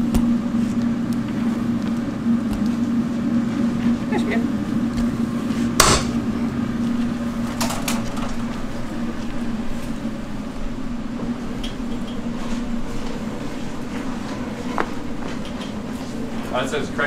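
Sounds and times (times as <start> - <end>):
low machine hum: 0.0 - 17.0
sharp knock: 5.8 - 6.2.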